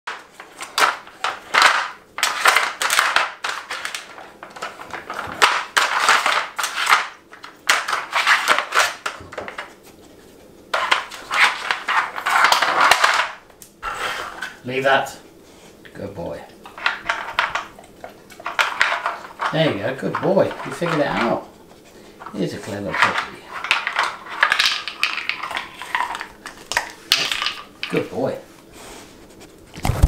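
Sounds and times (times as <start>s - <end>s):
plastic puzzle toy spinning and rattling: 0.1s - 9.7s, 10.7s - 14.6s, 16.8s - 17.7s, 18.3s - 21.4s, 22.2s - 28.3s
toy scraping across hard floor: 7.7s - 13.2s, 13.8s - 14.6s, 18.4s - 27.6s.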